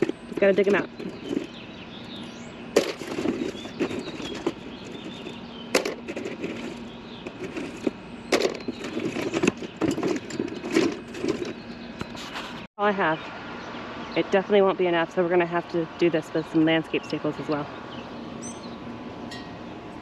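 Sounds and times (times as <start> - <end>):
sharp knocks and clatter: 2.8 - 12.4
rustling: 2.8 - 12.7.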